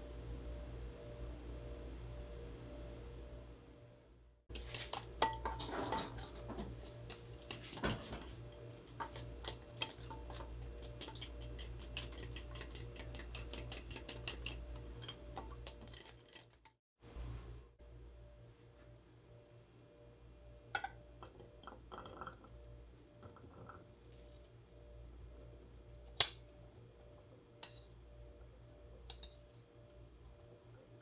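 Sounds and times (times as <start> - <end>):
steady low hum: 0.0 - 16.1, 17.0 - 31.0
spoon clinking against glass bowl: 4.5 - 16.5.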